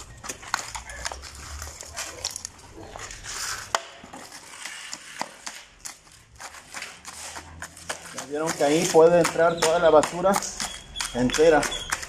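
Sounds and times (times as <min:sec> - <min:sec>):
shovels scraping wet cement mix: 0:00.0 - 0:12.0
shovel blade jabbing mix: 0:04.2 - 0:12.0.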